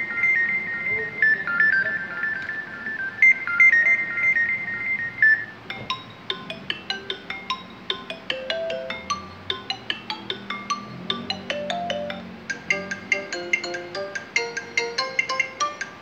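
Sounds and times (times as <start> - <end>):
high repeating ringtone melody: 0.0 - 16.0
ringtone of struck notes: 3.5 - 16.0.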